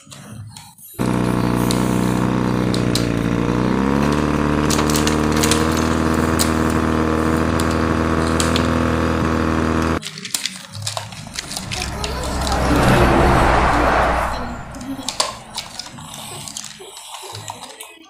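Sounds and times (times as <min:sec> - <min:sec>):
engine-like drone revving: 0:01.0 - 0:10.0, 0:10.9 - 0:16.6.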